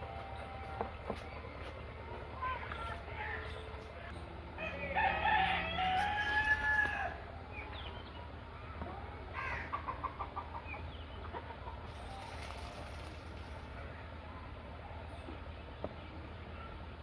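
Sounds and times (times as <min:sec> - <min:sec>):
rooster crowing: 0:04.6 - 0:07.2
chicken clucking: 0:09.6 - 0:12.8.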